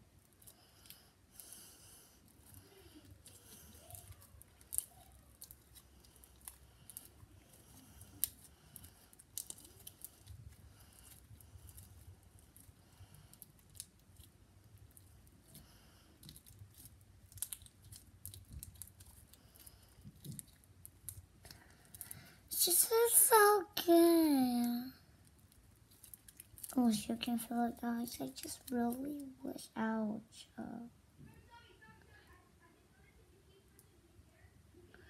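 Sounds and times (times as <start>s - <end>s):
slime clicking and snapping: 16.2s - 22.1s.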